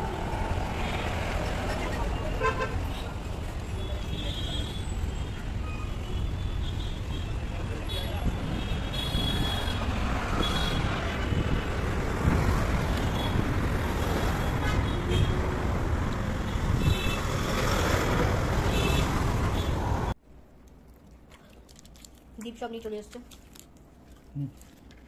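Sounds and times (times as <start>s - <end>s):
road traffic passing: 0.0s - 20.2s.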